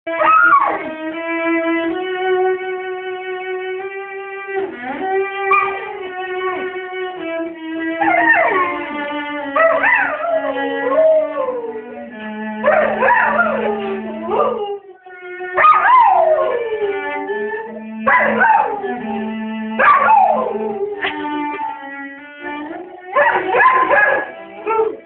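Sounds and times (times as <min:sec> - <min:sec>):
dog howling: 0:00.1 - 0:00.9, 0:05.5 - 0:05.9, 0:08.0 - 0:12.0, 0:12.6 - 0:14.9, 0:15.5 - 0:21.8, 0:22.4 - 0:25.0
cello playing bowed notes: 0:00.1 - 0:25.0.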